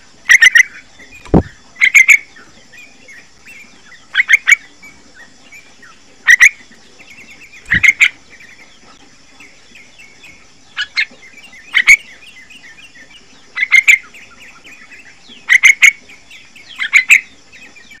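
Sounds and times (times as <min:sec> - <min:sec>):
soft bird chattering: 0:06.3 - 0:08.8, 0:10.7 - 0:17.4
bird calling sharp notes: 0:07.6 - 0:08.2.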